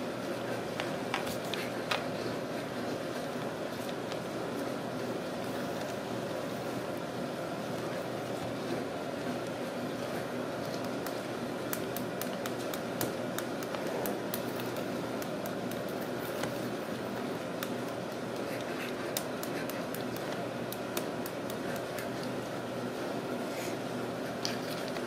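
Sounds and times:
clicks and taps on cardboard tube: 10.7 - 16.6, 17.5 - 22.2.

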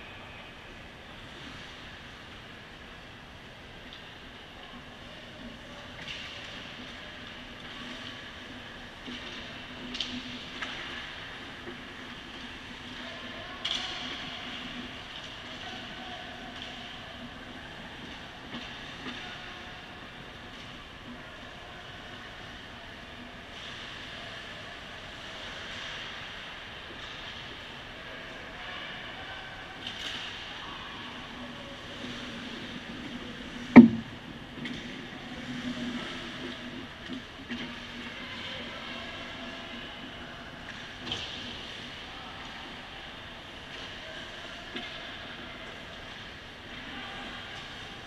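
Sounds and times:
skating and rink noise: 0.0 - 48.0
faint knocks: 33.8 - 34.2.

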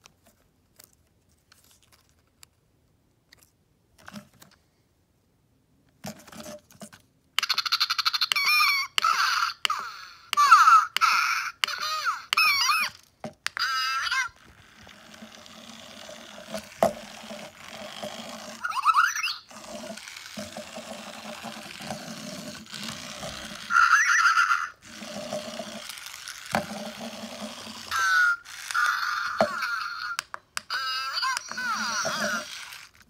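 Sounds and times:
electronic toy chirping and squeaking: 7.4 - 13.0, 13.6 - 15.1, 18.5 - 20.4, 21.3 - 26.6, 27.8 - 33.0
small wheel motor humming: 13.6 - 33.0.

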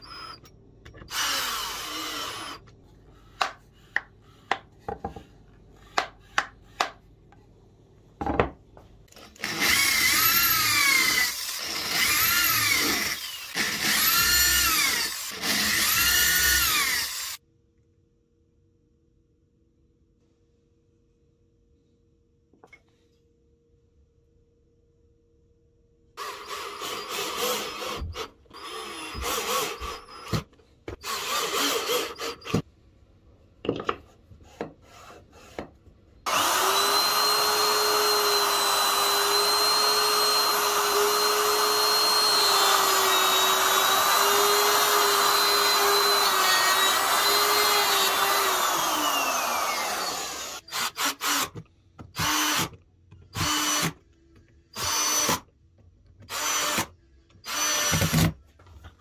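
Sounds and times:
cordless drill drilling into wood: 1.1 - 2.6, 9.4 - 17.4, 26.2 - 30.4, 31.0 - 32.6, 36.3 - 51.5, 52.2 - 52.7, 53.4 - 54.0, 54.8 - 55.4, 56.3 - 58.3
router cutting wood: 9.4 - 17.4, 36.3 - 51.4.

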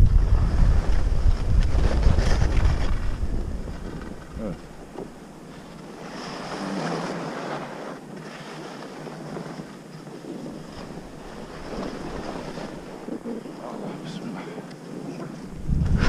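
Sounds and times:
wind buffeting microphone: 0.0 - 16.0
skis scraping over snow: 0.2 - 4.5, 8.6 - 13.8.

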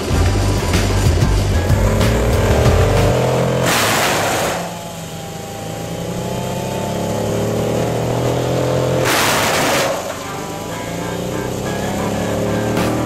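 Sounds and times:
woodchipper chipping log: 0.0 - 13.0
woodchipper engine straining: 0.0 - 13.0.

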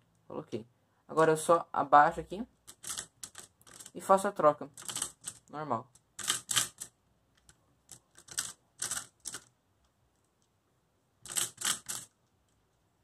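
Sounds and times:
plastic puzzle pieces clicking: 2.7 - 4.0, 4.8 - 9.5, 11.2 - 12.2.

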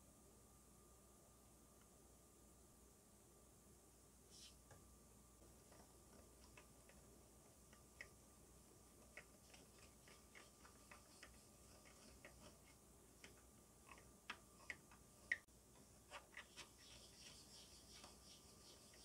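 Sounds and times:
soft rubbing hiss: 4.2 - 4.8, 5.4 - 19.0.

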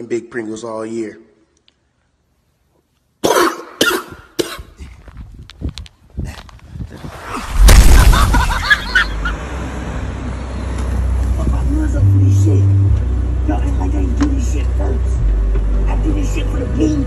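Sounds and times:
man coughing: 3.2 - 4.8
loud distorted bass noise: 7.6 - 9.0.

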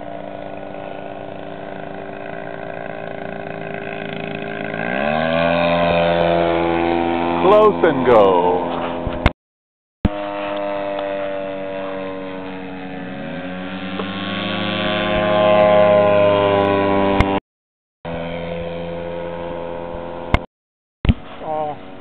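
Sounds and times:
model plane engine drone: 0.0 - 9.3, 10.1 - 17.4, 18.1 - 20.5, 21.1 - 22.0.

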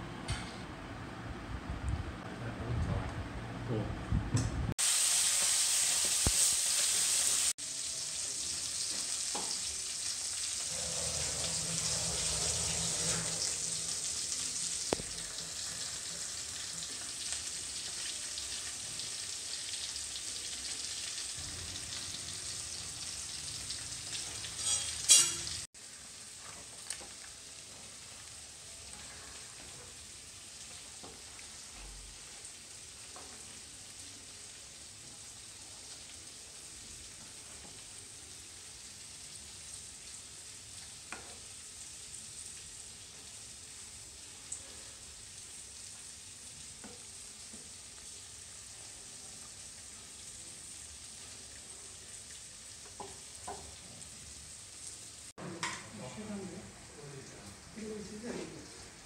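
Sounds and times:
steady hiss: 4.8 - 17.1
metal spoon scraping steel bowl: 10.7 - 14.4, 24.6 - 25.6.

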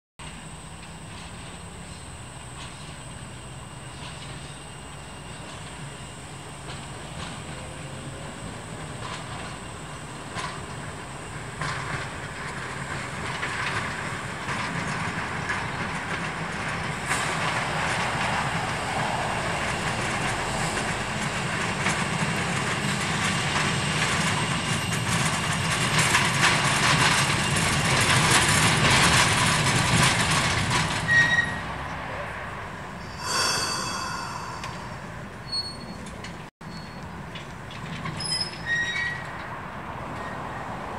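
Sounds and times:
tram wheels rumbling on rails: 0.2 - 36.5
short high wheel squeals: 31.0 - 31.7, 35.4 - 37.0, 38.2 - 39.4.

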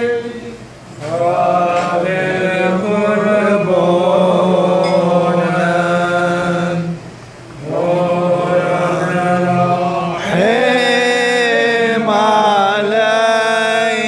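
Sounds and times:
man chanting: 7.6 - 14.0.

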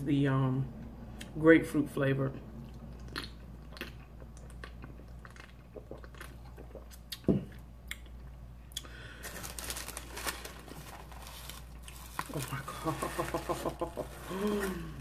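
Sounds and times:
bread crust crackling and rustling: 9.0 - 15.0.

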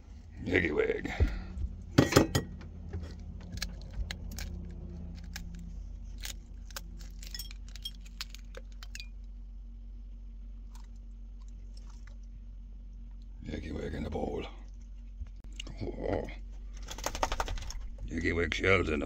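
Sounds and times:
low steady hum: 0.0 - 19.0
shell clicks and crackles: 3.0 - 9.2.

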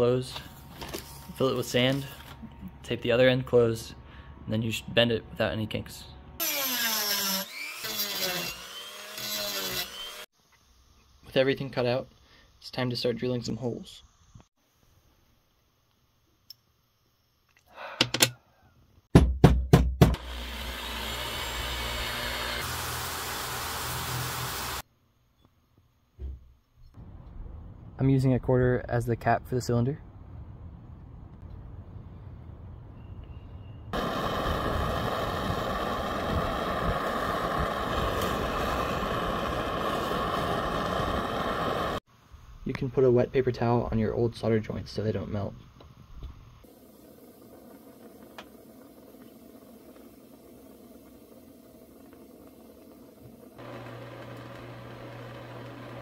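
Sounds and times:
propane torch hissing: 21.1 - 24.8, 34.0 - 42.1.

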